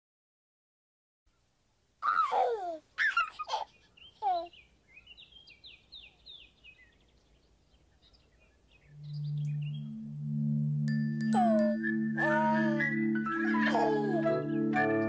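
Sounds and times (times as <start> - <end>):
high bird chirps: 3.0 - 10.2.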